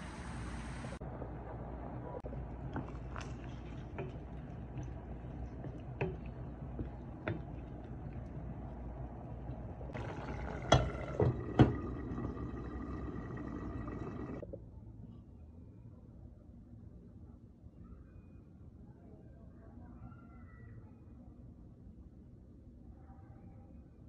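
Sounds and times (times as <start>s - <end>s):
curry bubbling in pot: 2.3s - 14.4s
spoon knocking pot: 3.9s - 8.5s, 10.0s - 12.6s.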